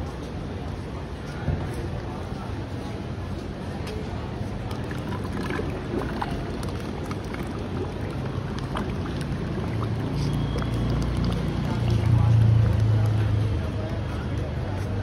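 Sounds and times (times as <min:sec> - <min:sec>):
street traffic rumble: 0:00.0 - 0:15.0
vehicle approaching: 0:04.7 - 0:15.0.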